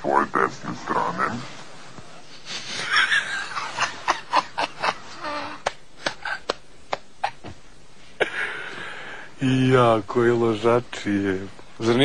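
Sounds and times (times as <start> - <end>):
men snickering: 2.4 - 6.6, 8.2 - 9.2.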